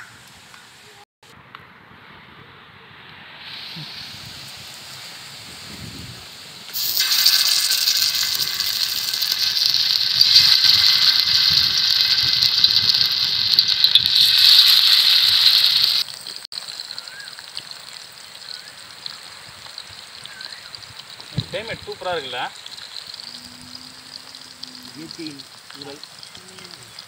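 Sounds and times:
hot oil sizzling loudly: 3.4s - 27.0s
fish frying in oil: 6.7s - 27.0s.

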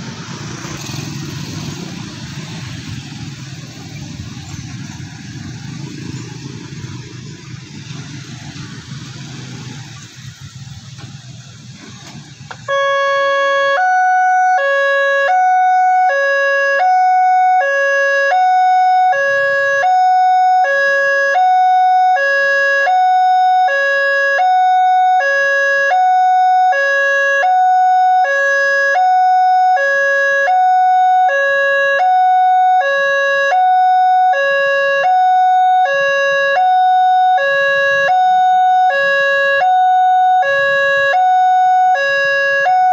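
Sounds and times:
motorcycle and car traffic: 0.0s - 42.9s
two-tone level crossing alarm: 12.7s - 42.9s.

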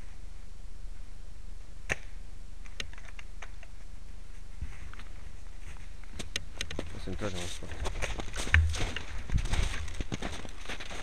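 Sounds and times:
steady low rumble: 8.4s - 10.1s.

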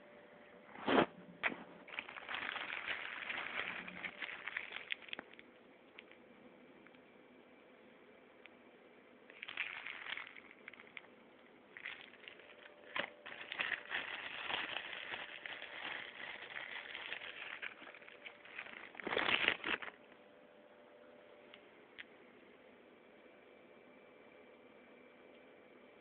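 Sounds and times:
packaging rustling and crinkling: 0.8s - 6.2s, 9.3s - 11.1s, 11.7s - 20.1s.

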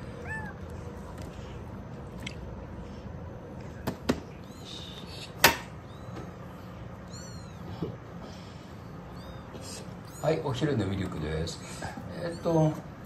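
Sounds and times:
steady low hum: 0.0s - 13.0s
kitten squeaks: 0.1s - 0.7s, 4.3s - 8.0s, 8.8s - 10.6s, 12.1s - 12.8s.

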